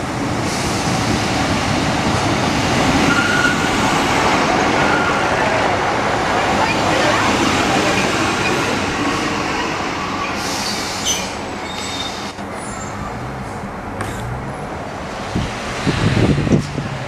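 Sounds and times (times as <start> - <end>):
diesel train engine: 0.0 - 17.0
wheel squeals: 10.2 - 13.2.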